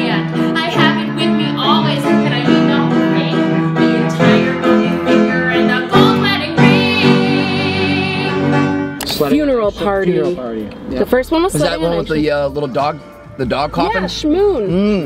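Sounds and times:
woman singing: 0.0s - 8.7s
instrumental backing: 0.0s - 15.0s.

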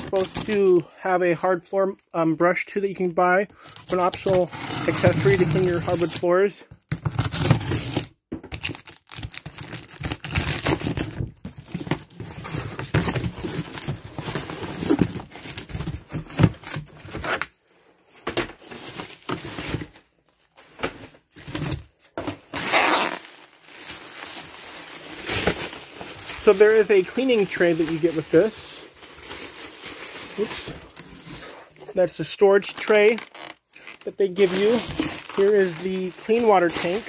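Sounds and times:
bubble wrap crinkling: 3.9s - 6.2s, 7.1s - 17.4s, 22.5s - 31.6s, 32.5s - 37.0s
packing tape tearing: 6.9s - 17.5s, 22.5s - 28.4s, 32.7s - 37.0s.

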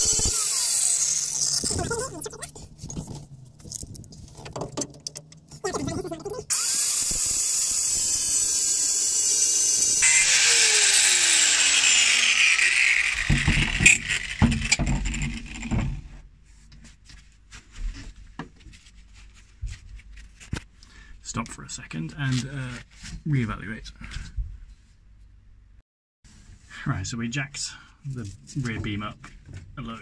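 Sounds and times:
angle grinder cutting metal: 0.0s - 1.8s, 6.5s - 15.9s
knocks and clatter: 13.2s - 16.1s.

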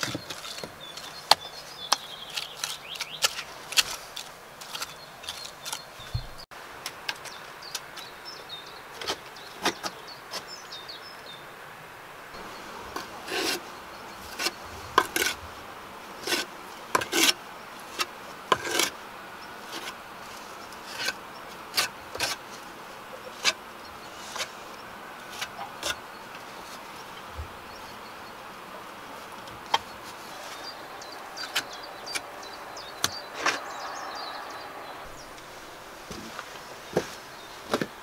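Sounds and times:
trowel scraping and tapping mortar: 0.0s - 6.4s, 14.3s - 15.4s, 16.2s - 19.0s.

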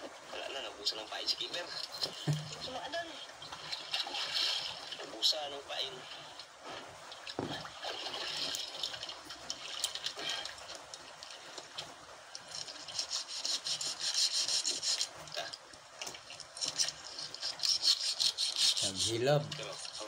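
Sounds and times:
water splashing against boat hull: 2.1s - 2.8s.

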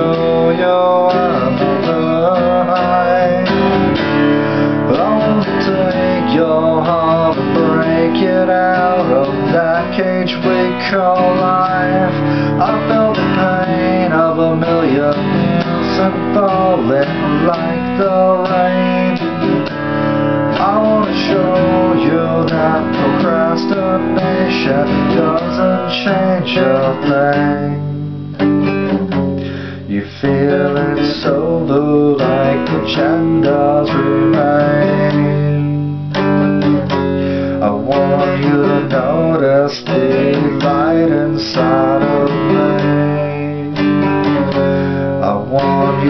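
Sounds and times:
acoustic guitar picking and strumming: 0.0s - 46.0s.

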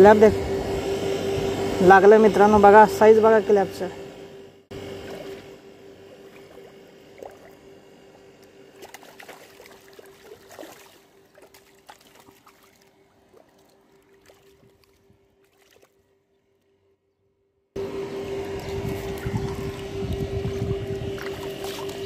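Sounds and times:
faint steady hum: 0.0s - 22.0s
fish splashing in water: 8.7s - 16.0s, 21.1s - 22.0s.

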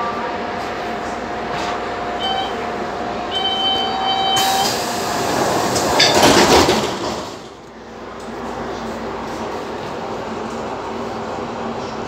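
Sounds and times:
electric train whining: 2.0s - 7.6s
train brakes squealing: 3.3s - 5.0s
air hiss of doors opening: 4.4s - 6.0s.

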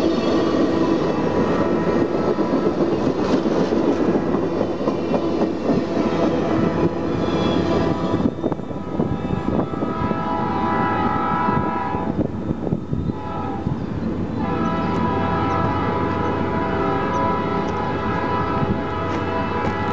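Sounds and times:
train cars rumbling on rails: 0.0s - 19.9s
locomotive air horn blasts: 8.8s - 12.3s, 13.1s - 13.8s, 14.4s - 19.9s.

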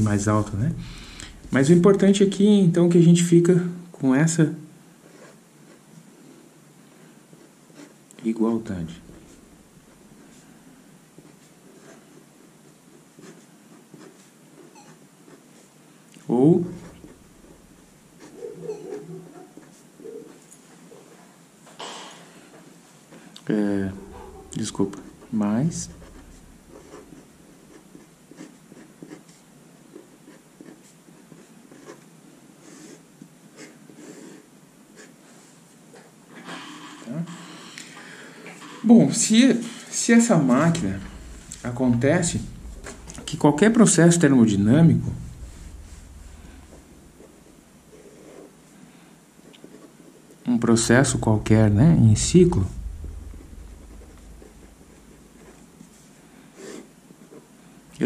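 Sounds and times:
pen scratching on paper: 5.0s - 5.9s, 7.4s - 8.0s, 11.2s - 15.8s, 23.8s - 33.0s, 33.6s - 35.2s, 46.2s - 48.5s, 53.7s - 55.7s.

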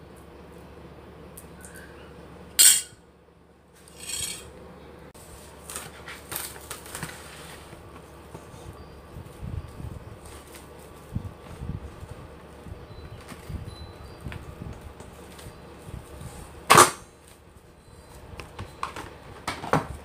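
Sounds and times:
metal spoon clinking on plate: 2.6s - 3.0s, 4.0s - 4.5s
plastic cling film rustling: 5.2s - 8.2s, 9.3s - 12.6s.

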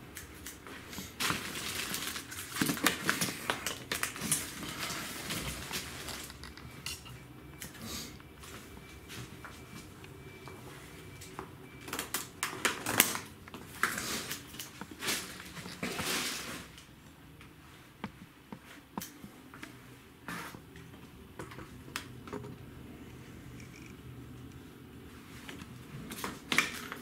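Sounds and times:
plastic crinkling: 0.4s - 6.6s, 11.8s - 16.9s.

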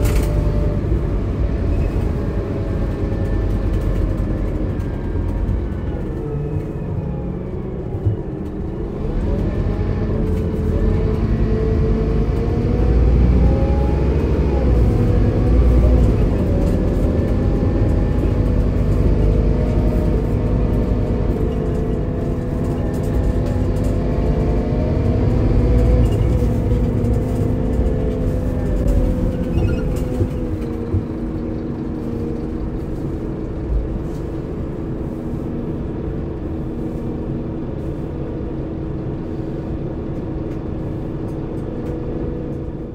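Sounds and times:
diesel engine running: 0.0s - 42.9s.

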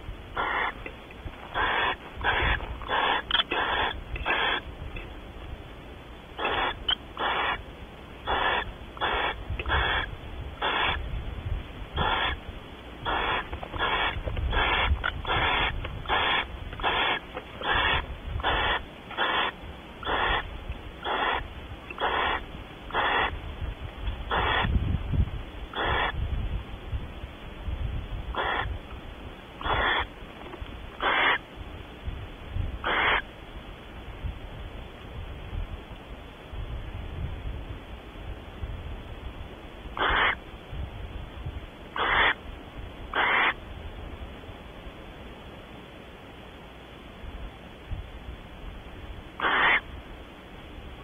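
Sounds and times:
owl raspy calls: 0.3s - 0.8s, 1.4s - 4.7s, 6.4s - 7.6s, 8.2s - 11.1s, 12.0s - 12.4s, 13.0s - 23.4s, 24.3s - 24.8s, 25.7s - 26.2s, 28.3s - 28.8s, 29.6s - 30.1s, 31.0s - 31.4s, 32.8s - 33.3s, 40.0s - 40.4s, 41.9s - 42.4s, 43.1s - 43.6s, 49.4s - 49.9s.

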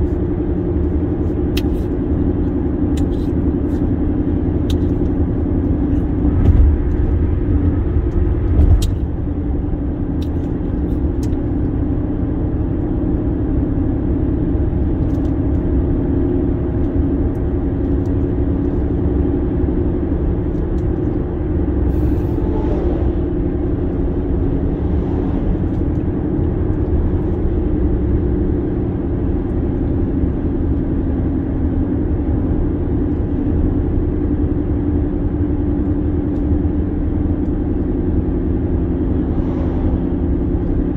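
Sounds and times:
car tyre and engine rumble: 0.0s - 40.9s
car thumps: 6.2s - 7.2s.

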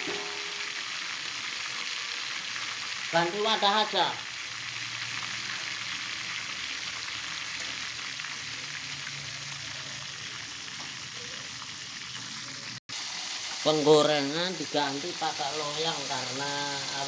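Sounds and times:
oil sizzling with frying fish: 0.0s - 17.0s.

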